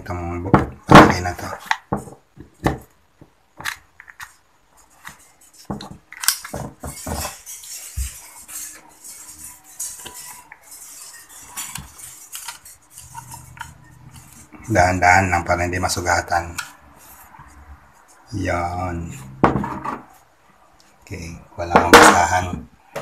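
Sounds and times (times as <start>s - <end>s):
metal tool scraping: 5.0s - 14.8s.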